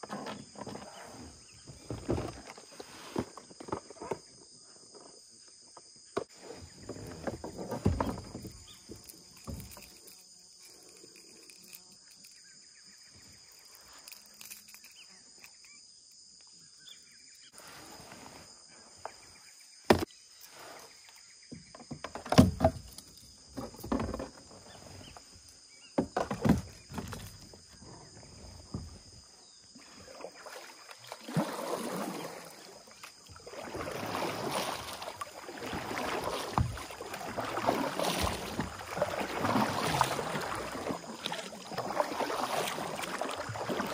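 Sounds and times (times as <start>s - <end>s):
high insect drone: 0.0s - 43.9s
paddle strokes swishing through water: 6.2s - 10.1s, 28.1s - 43.9s
knocks on a kayak: 19.9s - 20.1s.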